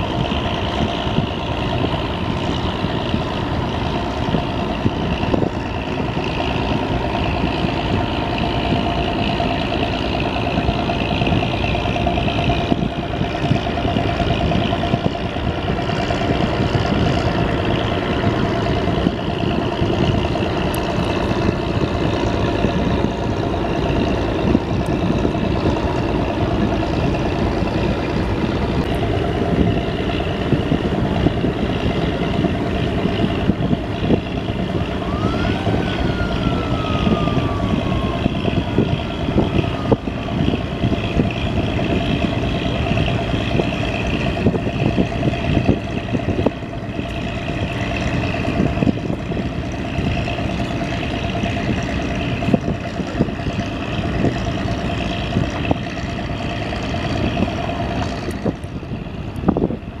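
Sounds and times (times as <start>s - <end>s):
boat diesel engine running: 0.0s - 60.0s
rushing water: 0.0s - 60.0s
wind noise: 0.0s - 60.0s.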